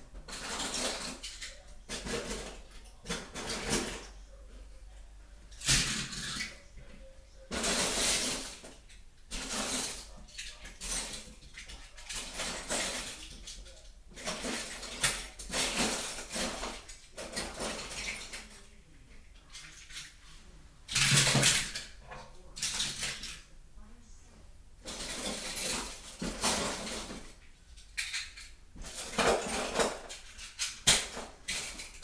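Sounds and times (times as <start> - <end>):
small hard objects clattering: 0.2 - 4.1, 7.5 - 18.6, 24.8 - 27.4, 28.0 - 32.0.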